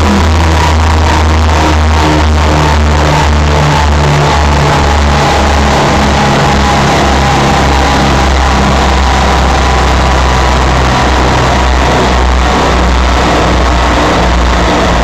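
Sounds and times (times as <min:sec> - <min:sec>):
car engine running: 0:00.0 - 0:15.0.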